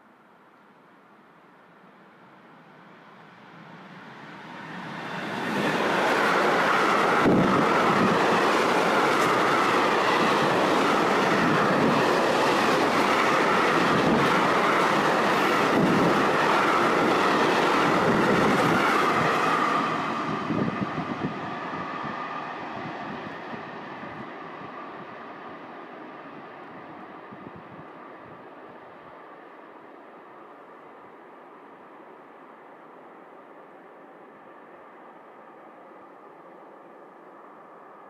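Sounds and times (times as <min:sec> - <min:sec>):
train wheels rushing on rails: 0:03.2 - 0:28.6.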